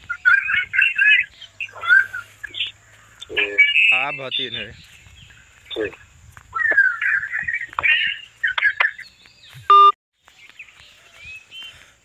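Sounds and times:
birds chirping and calling: 0.0 - 12.0
loud electronic beep: 9.7 - 10.0.

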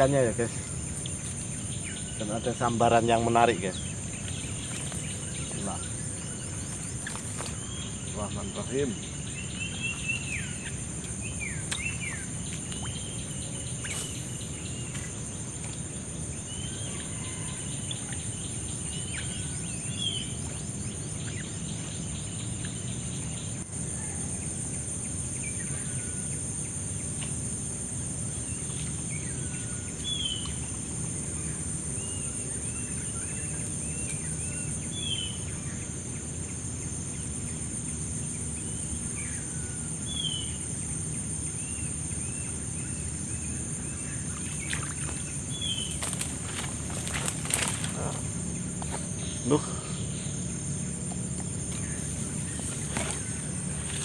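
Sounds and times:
high-pitched insect drone: 0.0 - 54.0.

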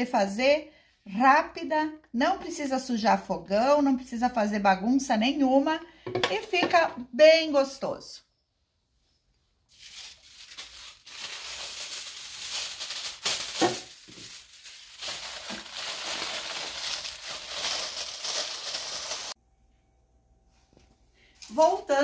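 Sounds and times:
aluminium foil crinkling: 9.7 - 19.4.

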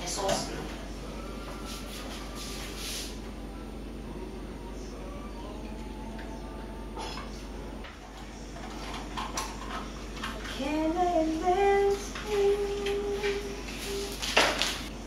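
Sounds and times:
woman singing: 10.3 - 14.9.

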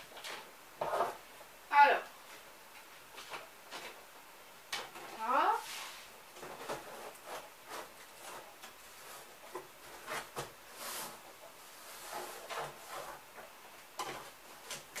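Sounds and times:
cardboard scraping and rubbing: 0.2 - 1.3, 5.6 - 14.6.

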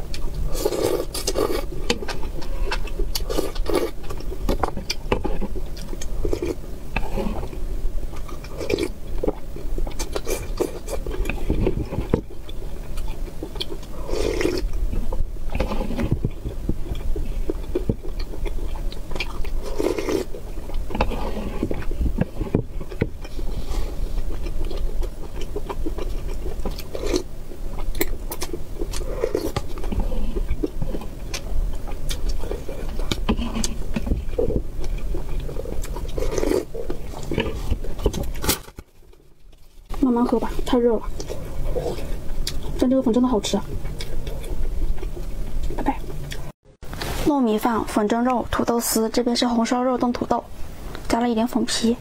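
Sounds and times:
chewing: 0.0 - 46.5
slurping: 13.0 - 16.3, 17.4 - 27.3, 32.1 - 38.6.

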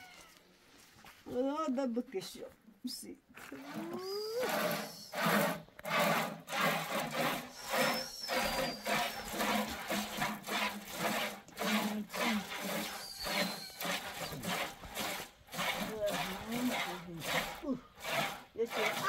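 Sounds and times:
rhythmic scraping strokes: 3.8 - 19.0.

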